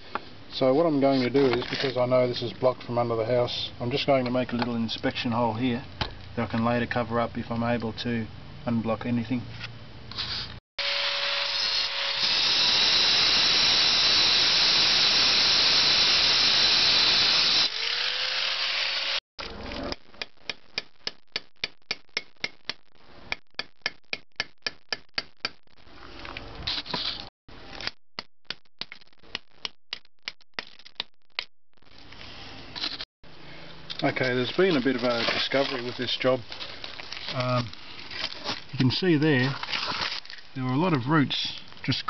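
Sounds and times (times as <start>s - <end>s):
angle grinder cutting ceramic pipe: 10.8s - 19.2s
hammer tapping pipe: 20.2s - 25.6s.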